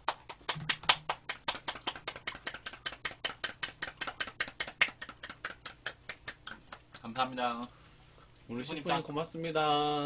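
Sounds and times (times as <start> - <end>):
people clapping hands: 0.0 - 7.1.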